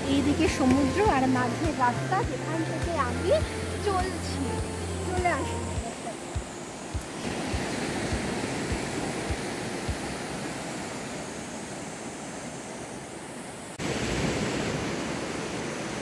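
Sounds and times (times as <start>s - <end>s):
surf breaking on sandy beach: 6.3s - 12.6s, 13.8s - 16.0s.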